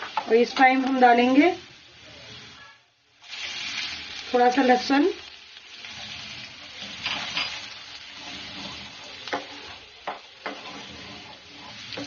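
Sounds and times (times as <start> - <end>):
garlic sizzling in hot oil: 0.0 - 12.0
spoon stirring in pan: 5.5 - 12.0
spoon knocking against pan: 9.3 - 10.7.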